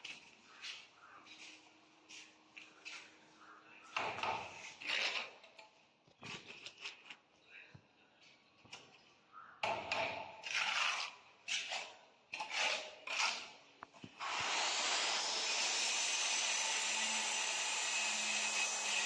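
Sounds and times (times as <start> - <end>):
trowel scraping mortar: 10.4 - 13.6.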